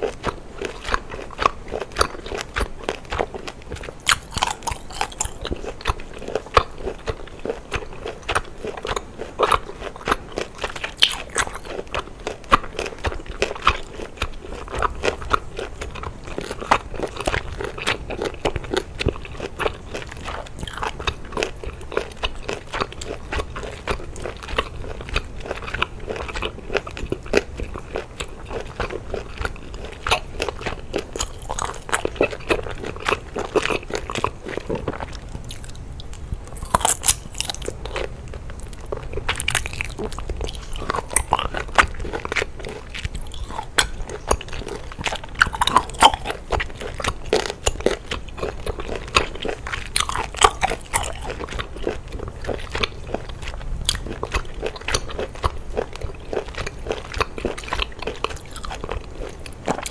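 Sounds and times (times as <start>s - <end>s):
biting and chewing: 0.0s - 59.9s
wet mouth clicks: 38.7s - 47.9s.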